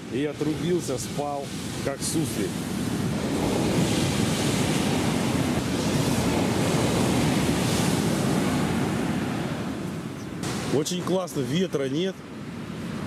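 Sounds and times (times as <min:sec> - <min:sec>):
sea surf breaking: 0:00.0 - 0:13.0.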